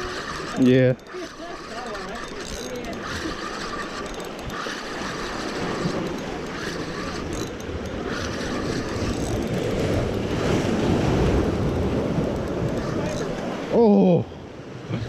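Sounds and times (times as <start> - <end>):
fishing reel cranking: 0.0 - 13.5
wind buffeting microphone: 4.4 - 13.7
surf breaking on rocks: 8.0 - 13.8.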